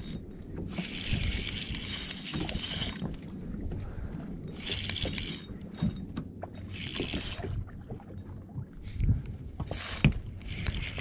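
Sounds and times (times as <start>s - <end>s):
fishing reel drag buzzing: 0.0s - 3.1s, 4.5s - 6.0s, 6.6s - 7.6s, 9.6s - 11.0s
water against boat: 0.0s - 11.0s
wind: 0.0s - 11.0s.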